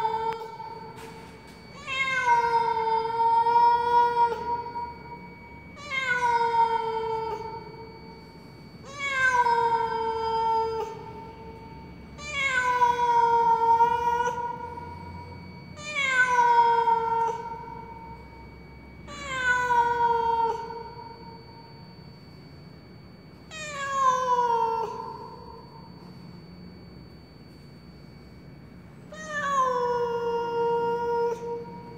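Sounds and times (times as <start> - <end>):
cat meowing loudly: 29.2 - 31.8.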